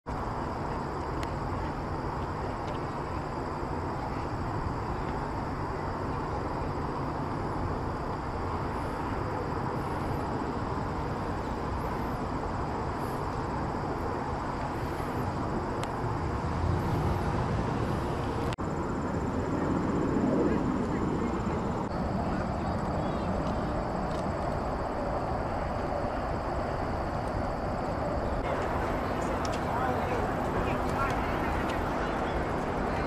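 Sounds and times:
road traffic rumble: 0.0 - 33.0
distant trains rumbling: 0.1 - 33.0.

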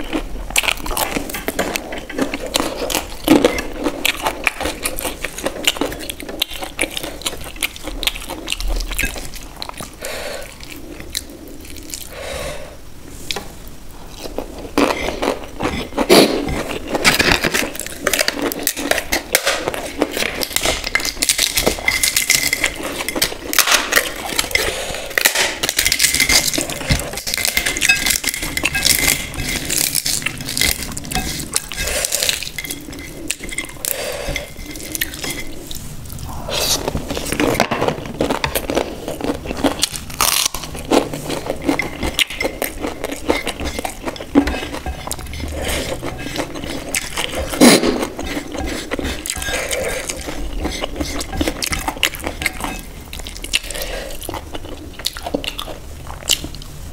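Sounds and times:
papad crunching while chewing: 36.6 - 56.7.

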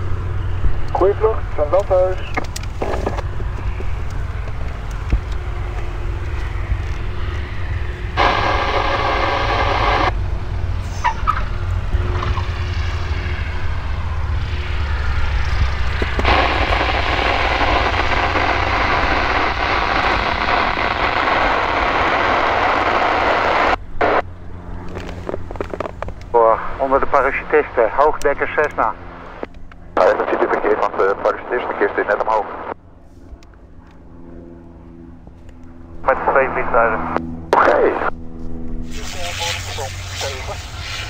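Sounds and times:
steady low rumble: 0.0 - 41.0
radio receiver hiss: 8.2 - 10.1, 14.4 - 24.2, 26.4 - 32.8, 36.1 - 38.1, 38.8 - 41.0.

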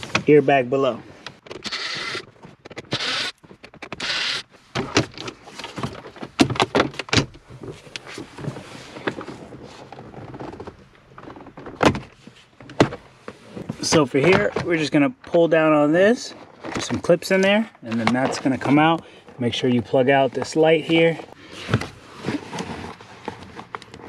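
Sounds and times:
cordless drill whirring: 1.6 - 2.3, 2.9 - 3.4, 4.0 - 4.4
plastic panels clicking and rattling: 4.8 - 7.4.

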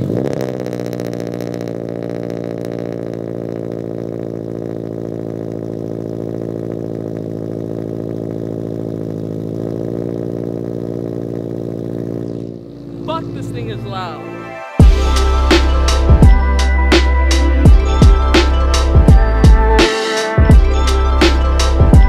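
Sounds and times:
car engine idling loudly: 0.0 - 14.2.

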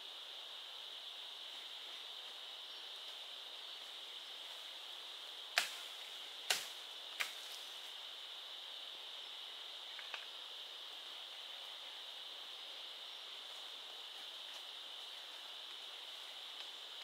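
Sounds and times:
forest insects chirring: 0.0 - 17.0.

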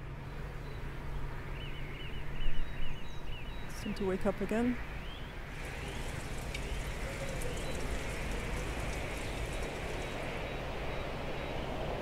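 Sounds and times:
wind-like rushing hiss: 5.4 - 12.0
rain-like patter: 5.5 - 10.9.

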